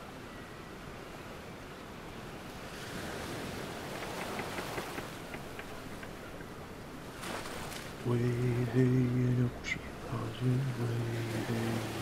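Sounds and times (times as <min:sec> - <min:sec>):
ocean waves: 0:00.0 - 0:12.0
wind: 0:00.0 - 0:12.0
light ticks: 0:03.9 - 0:06.5.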